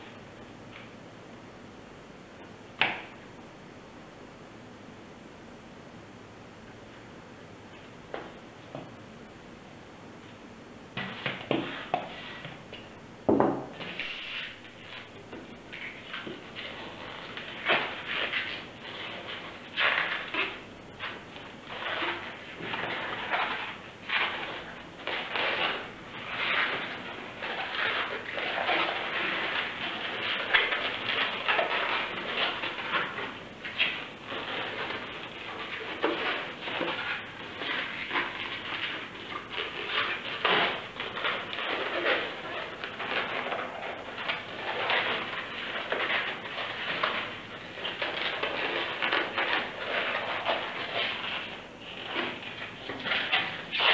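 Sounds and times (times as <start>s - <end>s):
balloon squeaking and rubbing: 13.8s - 53.9s.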